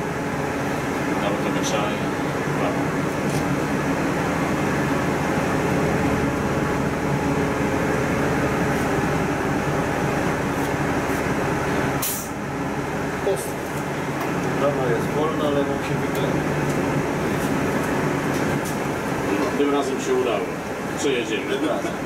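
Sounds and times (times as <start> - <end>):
bus engine drone: 0.0 - 22.0
road noise: 0.0 - 22.0
short hiss: 12.0 - 12.4.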